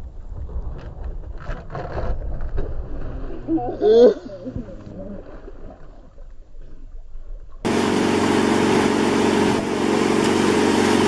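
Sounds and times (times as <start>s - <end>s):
churning wake: 7.6s - 11.0s
outboard motor running: 7.6s - 11.0s.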